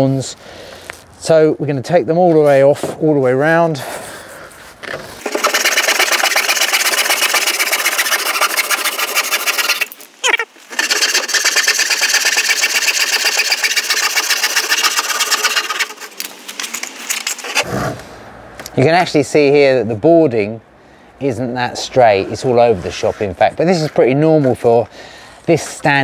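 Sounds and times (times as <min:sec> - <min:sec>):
handsaw sawing through wood: 0:05.2 - 0:10.0, 0:10.7 - 0:16.2, 0:17.2 - 0:17.7.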